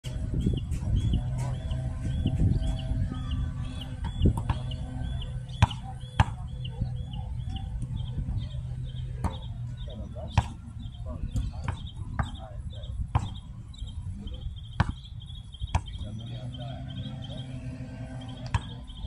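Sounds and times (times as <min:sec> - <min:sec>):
steady low rumble: 0:00.0 - 0:19.0
bird chirping: 0:00.1 - 0:19.0
basketball bouncing on hard court: 0:05.6 - 0:06.5, 0:11.6 - 0:12.4, 0:13.1 - 0:13.4, 0:14.8 - 0:15.1.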